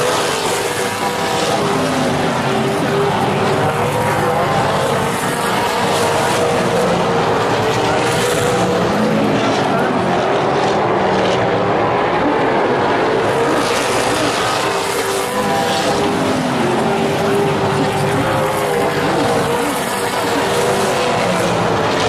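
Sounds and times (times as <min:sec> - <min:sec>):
race car engines roaring: 0:00.0 - 0:22.0.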